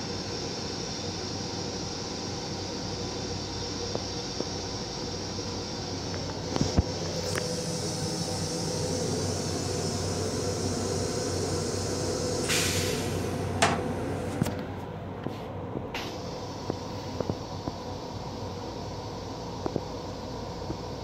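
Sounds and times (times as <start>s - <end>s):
railcar equipment hum: 0.0s - 21.0s
short hiss: 6.6s - 13.5s.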